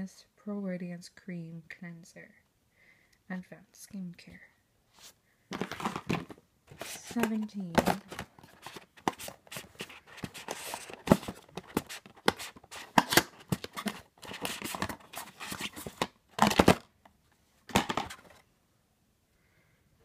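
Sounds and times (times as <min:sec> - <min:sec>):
card and paper rustling: 0:05.0 - 0:16.9, 0:17.7 - 0:18.4.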